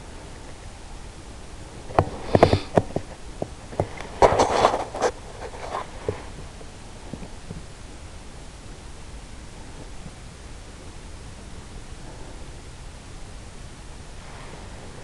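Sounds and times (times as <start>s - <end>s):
steady hiss: 0.0s - 15.0s
scratchy rustle: 1.8s - 7.6s.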